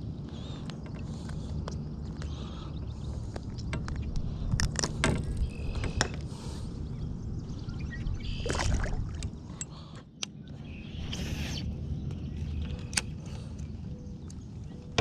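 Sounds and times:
steady low rumble: 0.0s - 15.0s
water splash: 8.4s - 9.2s.

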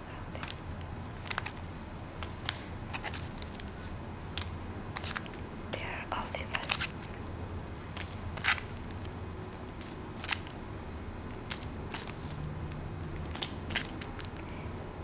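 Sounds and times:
plastic packaging crinkling: 0.4s - 5.4s, 6.3s - 7.1s.

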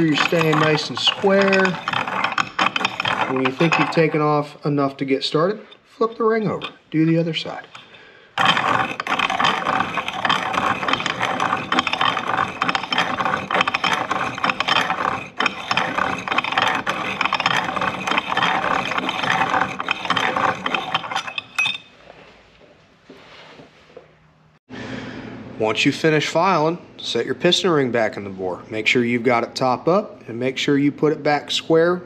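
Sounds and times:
hand-cranked grinder rattling: 0.0s - 4.5s, 5.4s - 21.9s.

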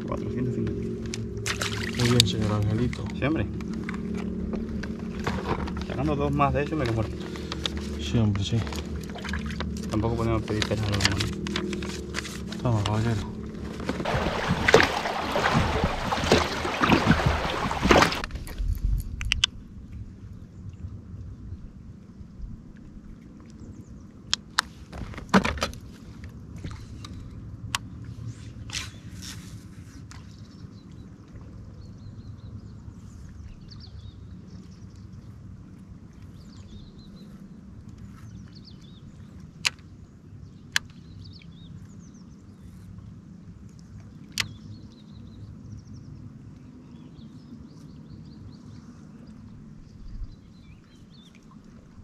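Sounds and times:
low rumble: 0.0s - 22.8s.

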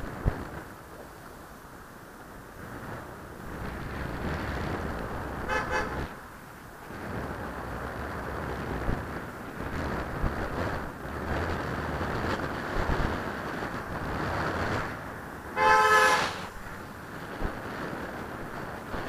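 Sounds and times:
wind on microphone: 0.0s - 1.3s, 2.4s - 19.0s
traffic: 0.0s - 19.0s
car horn blast: 5.5s - 6.0s, 15.6s - 16.6s.

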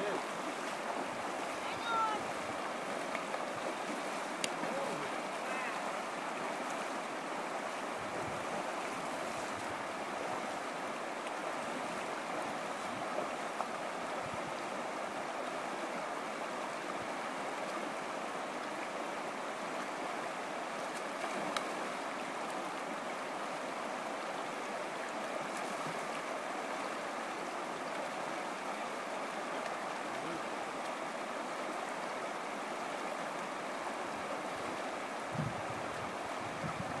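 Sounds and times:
water rushing over rocks: 0.0s - 37.0s
faint clicks: 4.4s - 4.7s, 20.9s - 21.8s.

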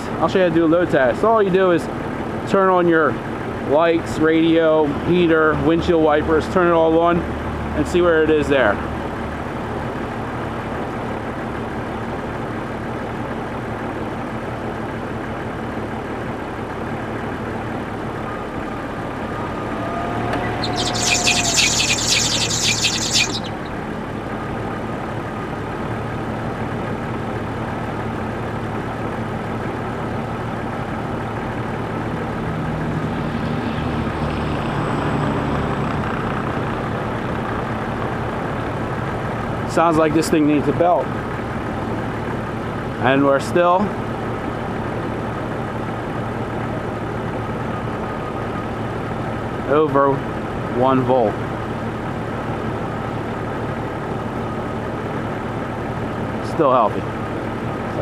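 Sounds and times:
truck engine idling: 0.0s - 33.0s, 36.3s - 58.0s
high-pitched pulsing belt squeal: 18.2s - 23.9s.

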